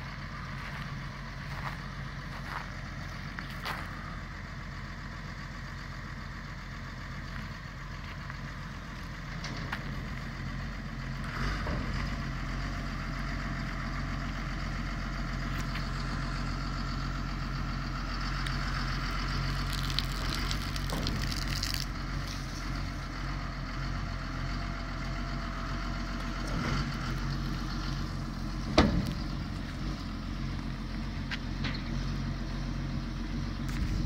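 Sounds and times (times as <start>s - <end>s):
diesel engine running: 0.0s - 34.0s.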